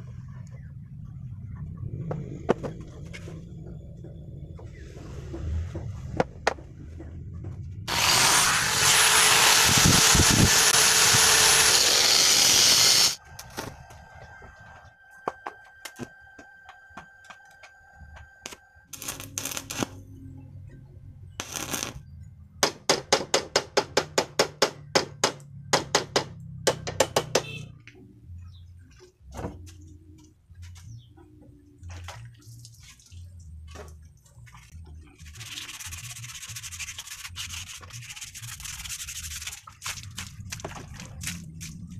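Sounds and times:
rushing hiss with high whistle: 7.9 - 13.2.

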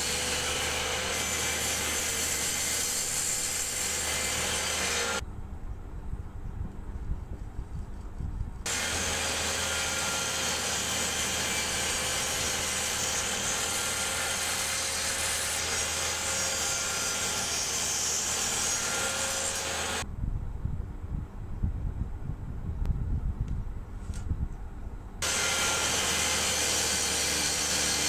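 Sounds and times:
power saw cutting wood: 0.0 - 5.2, 8.7 - 20.0, 25.2 - 28.0.

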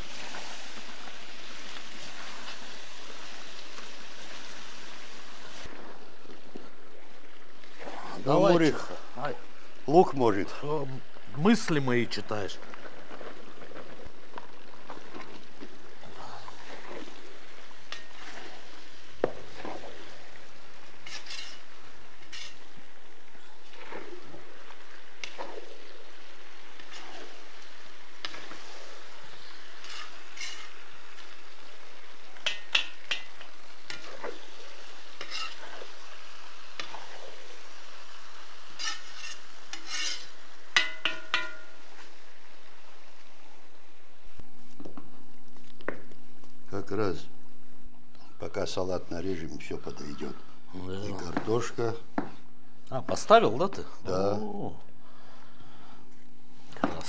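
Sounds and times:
meat sizzling in oil: 0.0 - 47.4
utensil scraping and clinking on pot: 21.0 - 22.6, 29.8 - 30.8, 35.2 - 35.9, 38.8 - 41.8.

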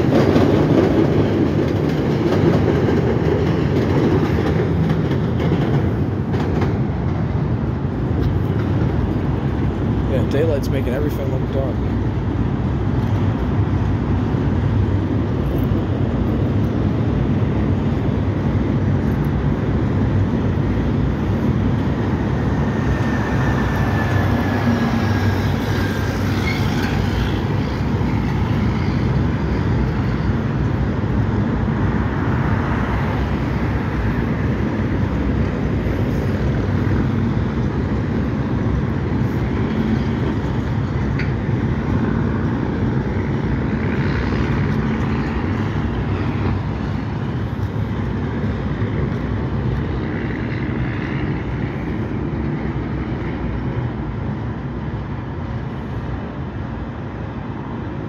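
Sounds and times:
train wheels rumbling on rails: 0.0 - 58.0
high wheel squeal: 23.0 - 29.7.

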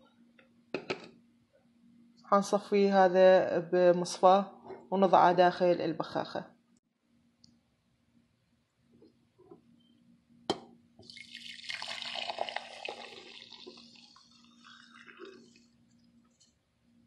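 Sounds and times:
water pouring through strainer: 11.0 - 15.7.

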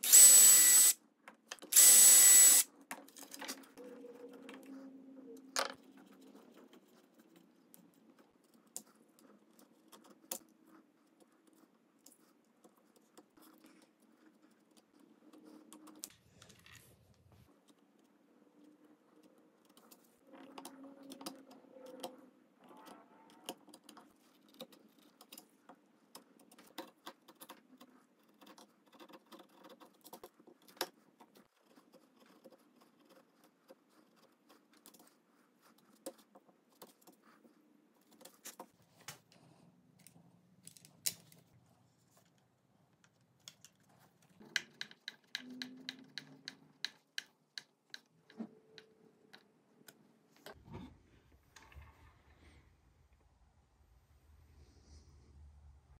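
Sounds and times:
screws being driven clicking: 0.0 - 1.0.

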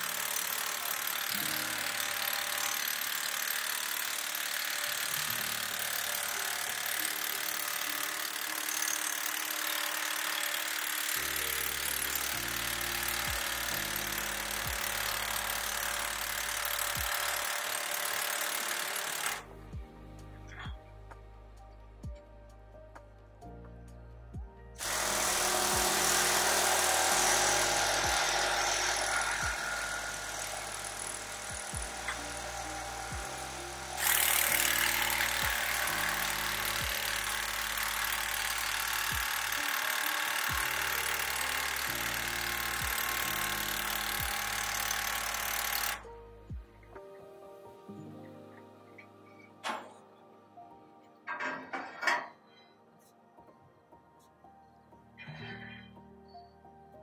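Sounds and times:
ratchet pawls clicking: 0.0 - 19.5, 24.8 - 46.0
music with deep bass: 19.5 - 24.8.

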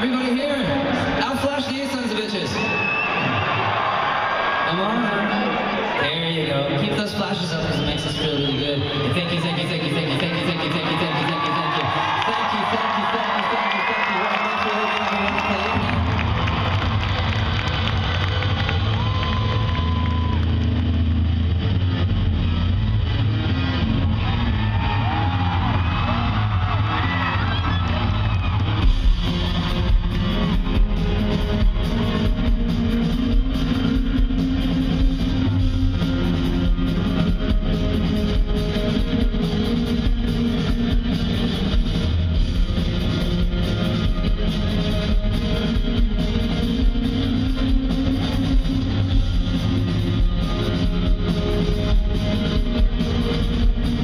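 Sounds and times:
rock band playing live: 15.6 - 54.0
drums steady beat: 24.3 - 54.0.

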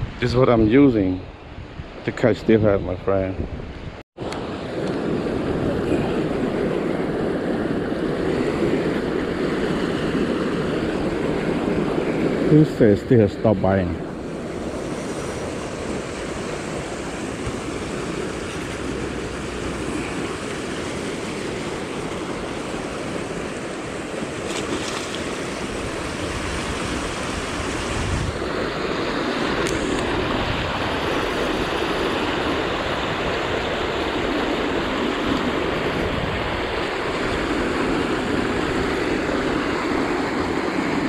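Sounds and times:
river water rushing: 4.2 - 12.6, 14.0 - 41.0.

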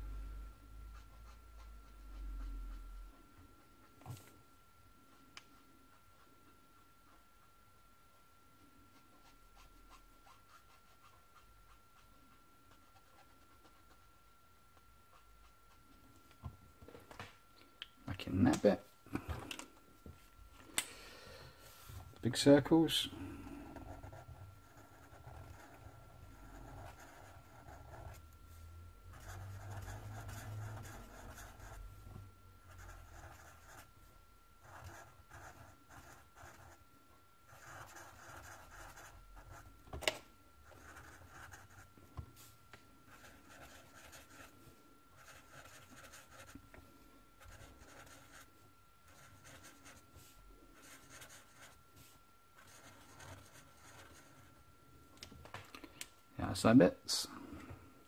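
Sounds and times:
marker scratching on paper: 23.8 - 28.2, 29.1 - 31.8, 37.5 - 39.6, 43.1 - 44.5, 47.4 - 48.5.

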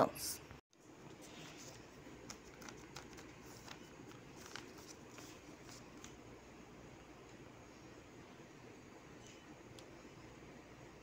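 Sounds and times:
plastic sheet crinkling: 1.3 - 6.2.

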